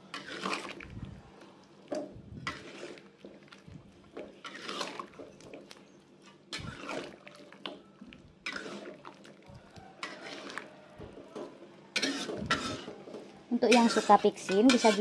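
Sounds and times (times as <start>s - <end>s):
metal spatula scraping a wok: 0.0s - 0.8s, 2.4s - 3.0s, 4.4s - 5.3s, 6.5s - 7.2s, 8.4s - 9.0s, 10.0s - 10.7s, 11.9s - 15.0s
thick sauce sloshing: 0.1s - 13.0s.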